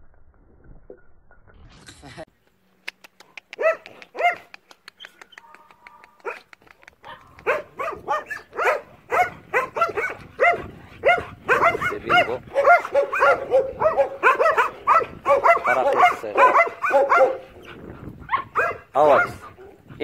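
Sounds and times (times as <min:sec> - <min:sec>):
dogs barking: 0:03.6 - 0:04.5, 0:05.5 - 0:19.9.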